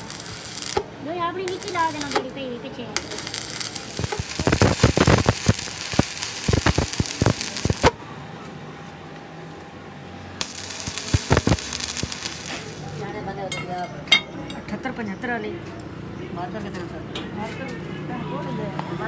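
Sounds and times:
welding arc crackling: 0:00.0 - 0:08.0, 0:10.4 - 0:13.2.

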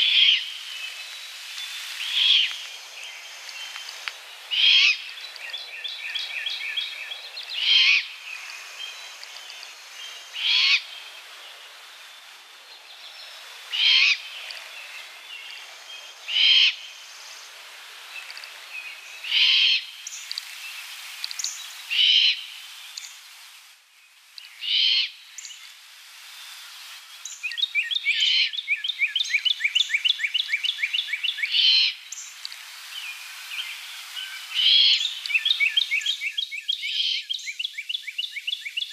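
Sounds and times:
owl fledgling screeching: 0:04.5 - 0:05.0, 0:07.6 - 0:08.1, 0:10.4 - 0:10.8, 0:13.7 - 0:14.2, 0:16.3 - 0:16.8, 0:24.6 - 0:25.1.

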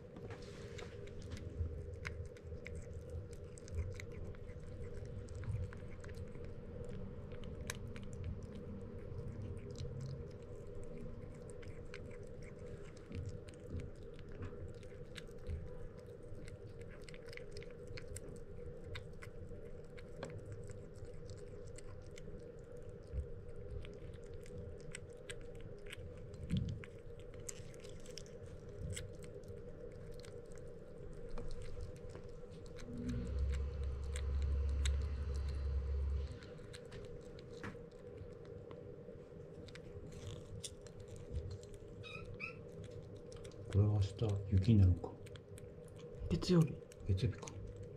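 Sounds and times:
low rumble: 0:00.0 - 0:17.0, 0:30.8 - 0:47.9
kitten chewing and licking: 0:00.0 - 0:47.9
steady low hum: 0:00.0 - 0:47.9.

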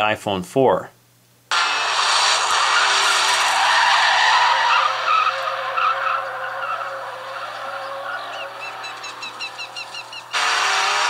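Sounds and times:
car engine sound effects: 0:01.5 - 0:11.0
tires skidding sound effects: 0:01.5 - 0:11.0.

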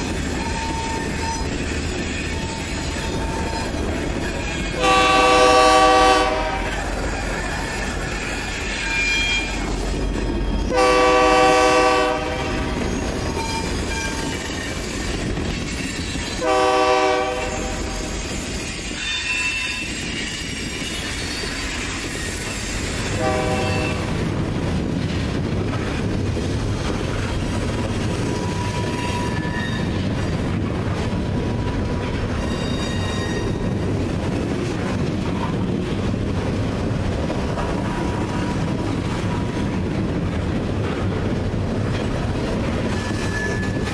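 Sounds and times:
wheel squeal: 0:00.0 - 0:04.8, 0:06.8 - 0:10.7, 0:12.8 - 0:16.4, 0:17.9 - 0:23.0, 0:28.3 - 0:30.1, 0:32.4 - 0:33.8, 0:42.9 - 0:43.9
diesel locomotive rumble: 0:00.0 - 0:19.0, 0:19.8 - 0:43.9
train wheel clatter and rumble: 0:00.0 - 0:43.9
locomotive air horn blasts: 0:04.8 - 0:06.8, 0:10.7 - 0:12.8, 0:16.4 - 0:18.2, 0:23.2 - 0:24.1.

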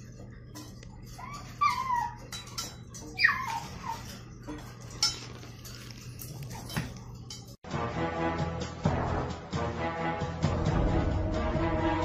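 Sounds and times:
puppy yipping: 0:01.1 - 0:04.2.

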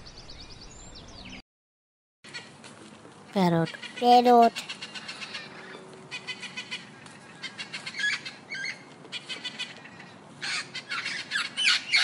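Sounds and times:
parrots squawking: 0:03.6 - 0:12.0.

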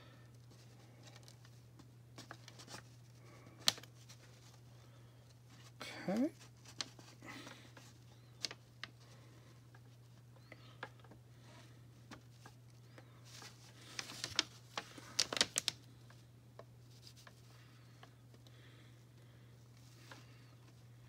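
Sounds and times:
low steady hum: 0:00.0 - 0:21.0
hands handling plastic toy: 0:12.0 - 0:18.4.

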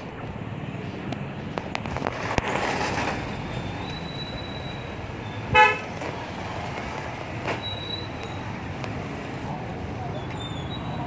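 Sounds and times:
street traffic noise: 0:00.0 - 0:11.0
vehicle horn toot: 0:05.5 - 0:05.9.

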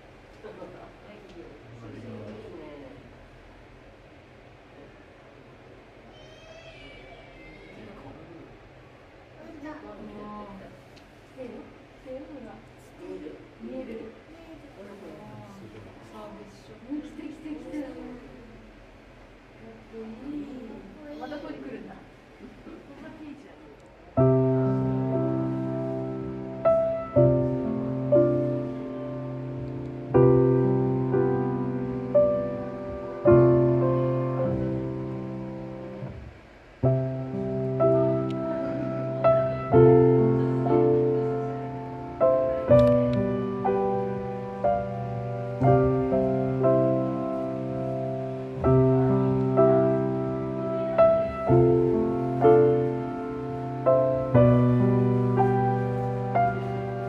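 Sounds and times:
gentle piano chords: 0:24.1 - 0:57.0.

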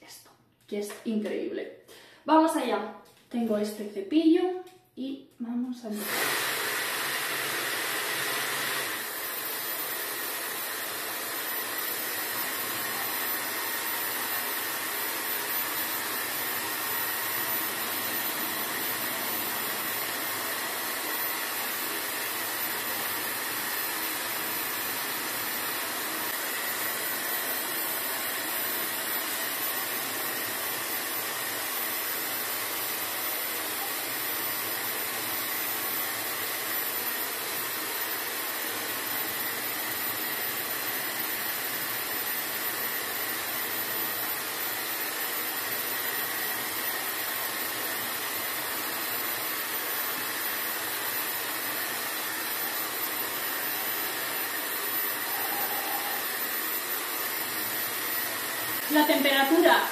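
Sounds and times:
hair dryer running: 0:05.9 - 0:59.9.

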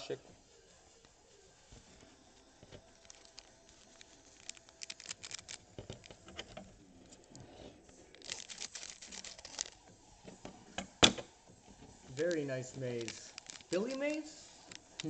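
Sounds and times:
card pack wrapper crinkling: 0:02.8 - 0:06.5, 0:08.0 - 0:09.8, 0:12.1 - 0:15.0.

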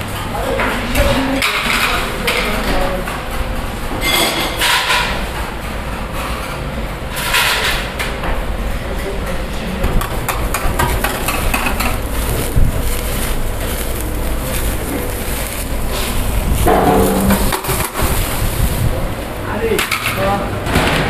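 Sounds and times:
kitchen clicks and clatter: 0:00.1 - 0:08.3, 0:09.8 - 0:18.5, 0:19.7 - 0:21.0
steady rushing noise: 0:09.8 - 0:19.6.

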